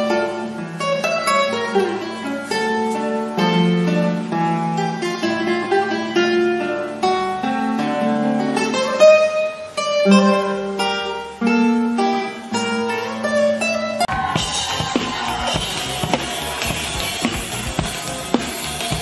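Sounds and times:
classical guitar melody: 0:00.0 - 0:19.0
drum kit playing: 0:14.1 - 0:19.0.

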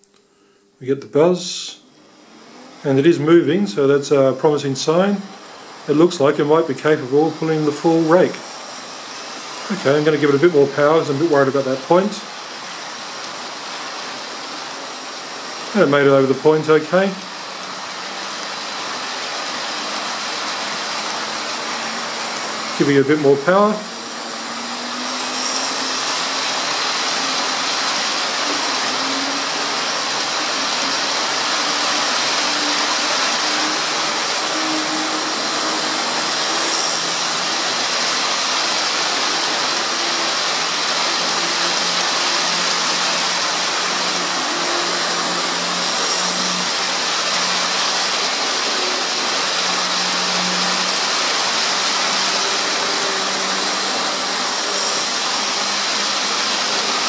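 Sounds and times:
electric motor buzz: 0:01.8 - 0:57.0
model train wheels on rails: 0:03.8 - 0:57.0.

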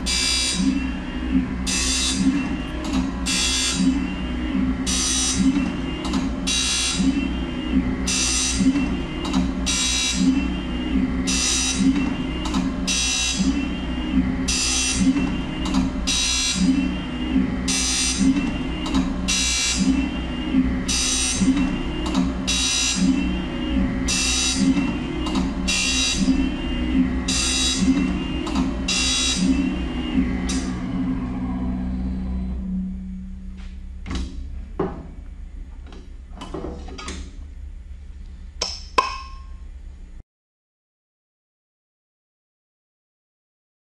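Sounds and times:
low machine hum: 0:00.0 - 0:40.2
metal knocks and clanks: 0:34.0 - 0:35.2.

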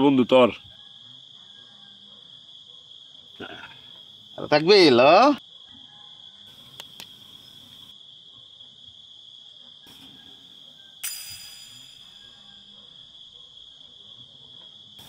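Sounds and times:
crickets chirping: 0:00.0 - 0:15.0
bright ringing ding: 0:11.0 - 0:12.6.

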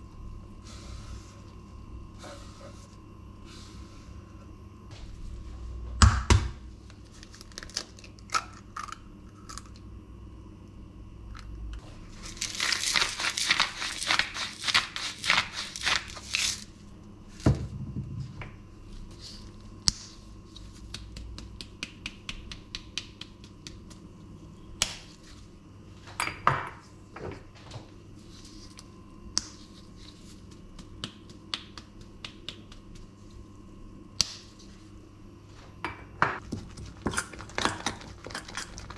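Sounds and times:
crackling and crinkling: 0:06.8 - 0:09.8, 0:11.8 - 0:16.7, 0:36.4 - 0:38.9.

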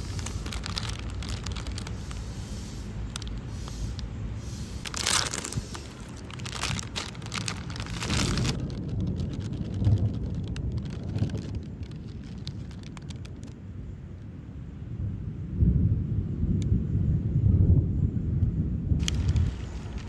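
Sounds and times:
plastic packaging crinkling: 0:00.0 - 0:04.1, 0:04.7 - 0:13.6, 0:19.0 - 0:20.0
low rumbling handling noise: 0:00.0 - 0:14.2, 0:18.4 - 0:20.0.

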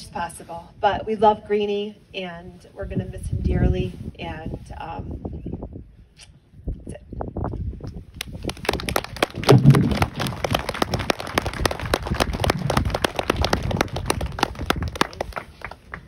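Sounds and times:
audience applauding: 0:08.4 - 0:16.0.

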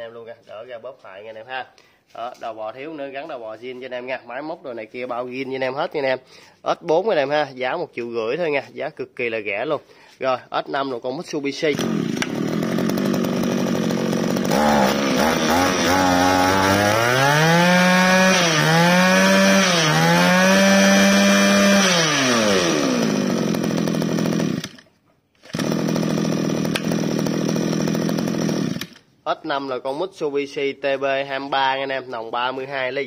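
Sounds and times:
brush-cutter engine idling and revving: 0:11.7 - 0:29.1.

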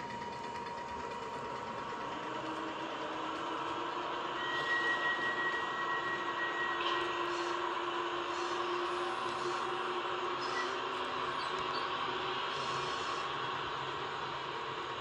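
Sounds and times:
low whine: 0:00.0 - 0:15.0
model train mechanical hum: 0:00.0 - 0:15.0
high whistle-like tone: 0:04.4 - 0:07.5.

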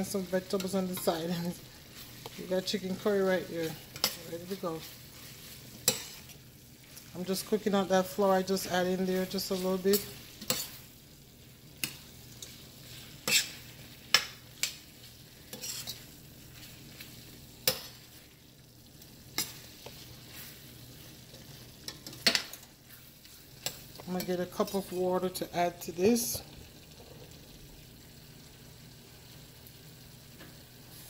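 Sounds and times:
faint stew sizzling: 0:00.0 - 0:31.0
metal spoon scraping a pot: 0:09.4 - 0:10.8, 0:12.9 - 0:14.8, 0:15.5 - 0:16.7.

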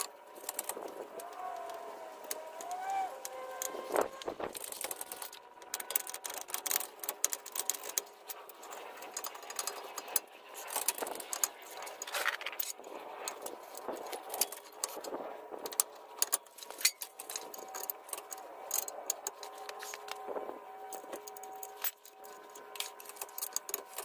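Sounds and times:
metal clinks and rattles: 0:04.5 - 0:20.2.

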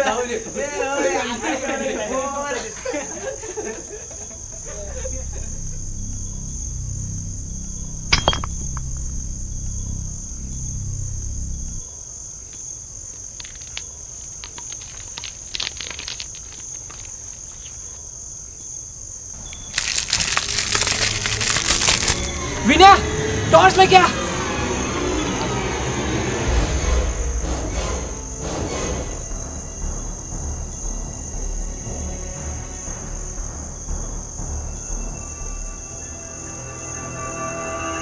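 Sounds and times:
crickets chirping: 0:00.0 - 0:38.0
low drone: 0:04.2 - 0:11.8, 0:19.4 - 0:38.0.

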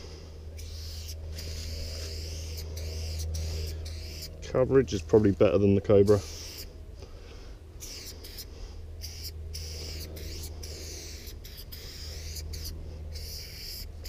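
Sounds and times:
spray paint can hissing: 0:09.0 - 0:13.8.

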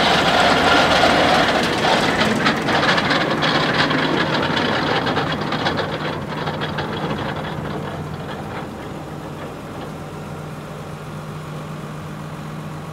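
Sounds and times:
rushing clattering machinery: 0:00.0 - 0:11.8
tractor engine humming: 0:00.0 - 0:12.9.

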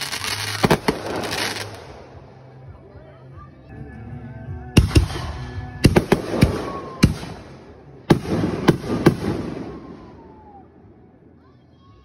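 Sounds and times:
fireworks bangs: 0:00.0 - 0:01.9, 0:08.1 - 0:10.3
fireworks crackling and hiss: 0:00.0 - 0:02.1.

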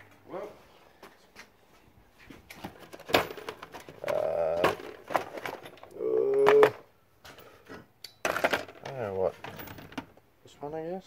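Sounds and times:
metal tools clicking and clinking: 0:07.3 - 0:10.2.

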